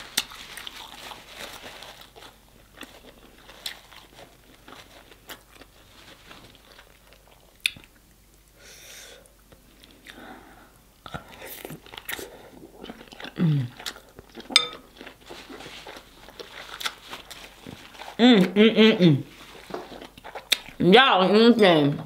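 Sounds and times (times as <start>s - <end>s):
close chewing and biting: 0.0s - 8.6s, 11.1s - 18.6s, 19.3s - 20.8s.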